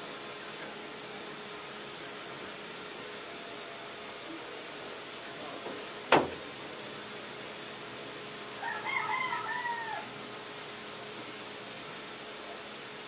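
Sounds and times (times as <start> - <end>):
sharp knock: 6.1 - 6.4
rooster crowing: 8.6 - 10.2.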